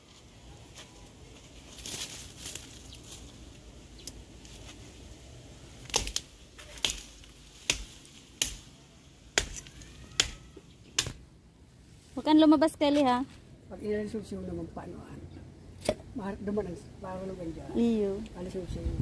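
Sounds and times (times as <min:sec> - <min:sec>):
machete chopping strikes: 0:05.8 - 0:08.7, 0:09.3 - 0:11.3, 0:15.8 - 0:16.0.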